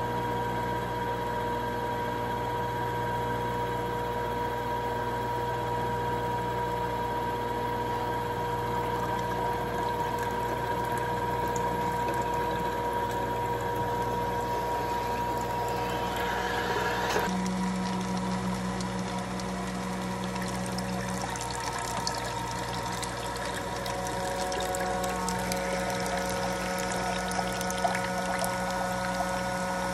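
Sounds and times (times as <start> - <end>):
juicer press motor humming: 5.1 - 29.9
juice streaming out: 8.6 - 29.9.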